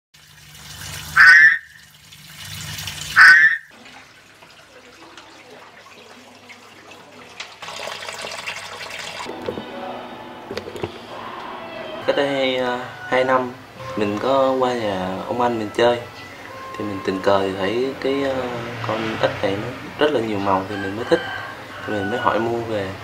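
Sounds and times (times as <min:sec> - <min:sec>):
frog croaking and squawking: 0:01.2 - 0:01.8, 0:03.2 - 0:03.7.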